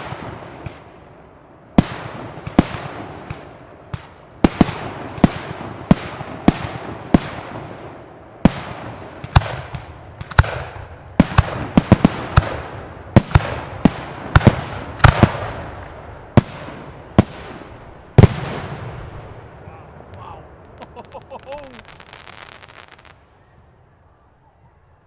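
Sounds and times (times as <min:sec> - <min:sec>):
firework shells bursting: 0:20.1 - 0:23.2.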